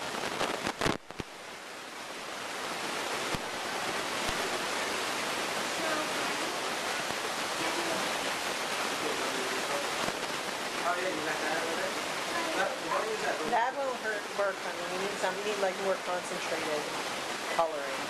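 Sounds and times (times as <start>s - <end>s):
steady rushing hiss: 0.0s - 18.0s
faint voices: 3.8s - 18.0s.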